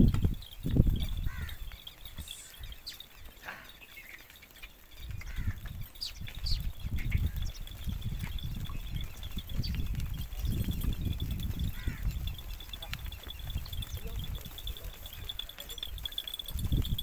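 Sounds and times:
herd of goats moving: 0.0s - 17.0s.

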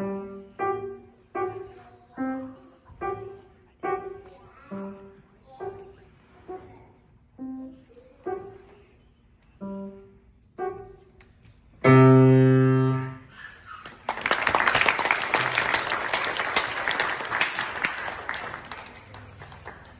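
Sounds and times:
grand piano playing: 0.0s - 1.8s, 11.8s - 13.3s
audience applause: 13.8s - 19.9s.

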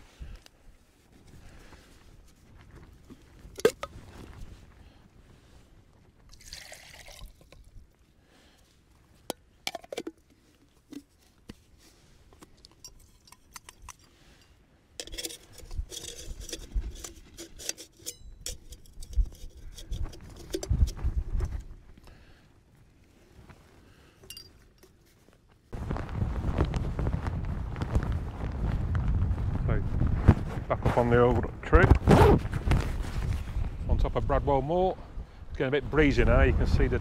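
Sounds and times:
metal pot and lid clinking: 15.0s - 20.7s.

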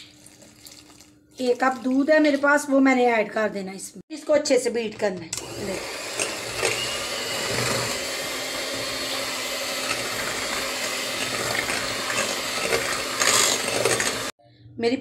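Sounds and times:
electric hand mixer whisking batter: 5.4s - 14.4s.

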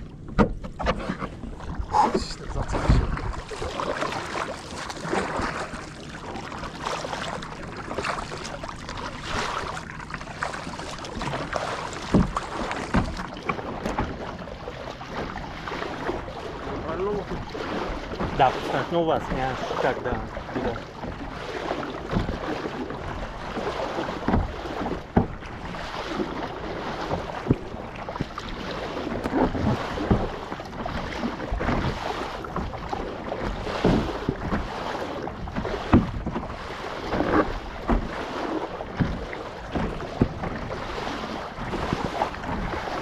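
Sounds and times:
water splashing against kayak: 0.0s - 43.0s
wind buffeting microphone: 1.6s - 6.4s.

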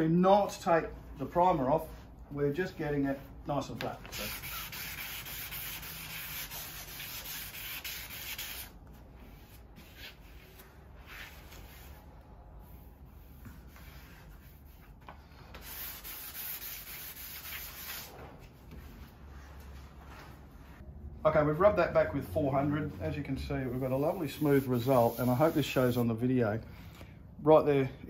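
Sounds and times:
sandpaper rubbing strokes: 4.1s - 8.7s, 15.5s - 18.2s, 23.6s - 26.1s.

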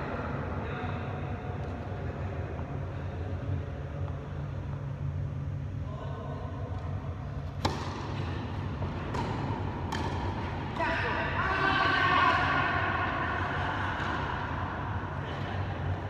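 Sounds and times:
steady low hum: 0.0s - 16.0s
tennis racket hitting ball: 7.4s - 11.0s.

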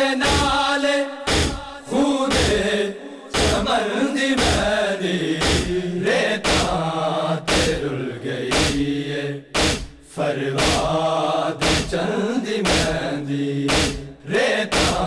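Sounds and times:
men chanting a lament: 0.0s - 15.0s
hands beating on chests: 1.3s - 1.6s, 3.4s - 3.7s, 4.4s - 4.6s, 5.4s - 5.7s, 6.4s - 6.7s, 7.5s - 7.8s, 8.5s - 8.8s, 9.6s - 10.0s, 10.6s - 10.9s, 11.6s - 12.0s, 12.7s - 13.0s, 13.7s - 14.0s, 14.7s - 15.0s.

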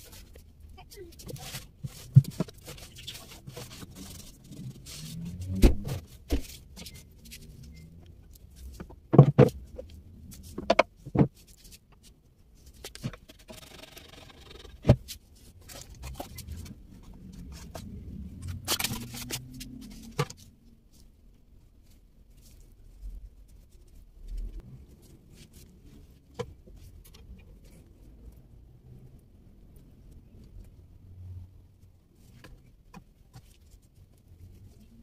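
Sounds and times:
rubbing: 0.0s - 8.9s.

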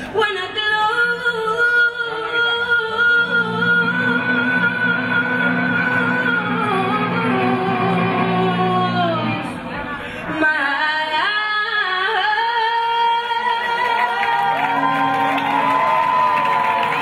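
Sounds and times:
woman singing: 0.0s - 16.4s.

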